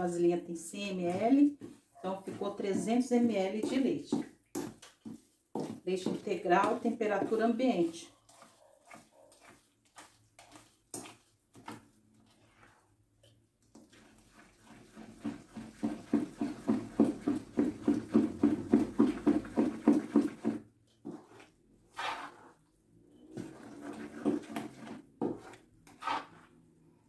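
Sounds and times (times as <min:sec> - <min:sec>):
spoon beating batter in metal bowl: 0:00.8 - 0:26.8.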